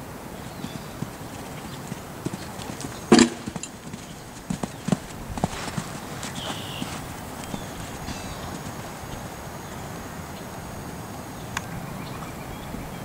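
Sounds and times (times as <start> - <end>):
horse hoofbeats on sand: 0.0 - 10.1
loud thump: 3.1 - 3.6.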